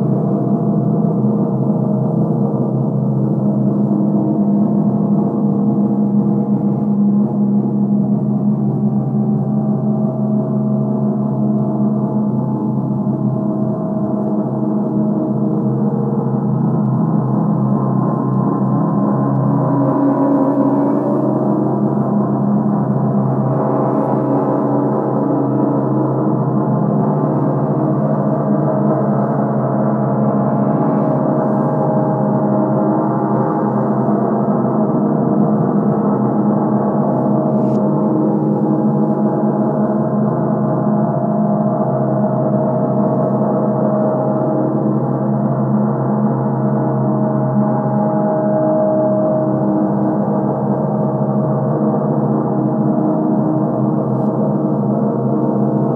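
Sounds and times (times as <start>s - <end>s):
reversed gong ringing: 17.9s - 27.0s.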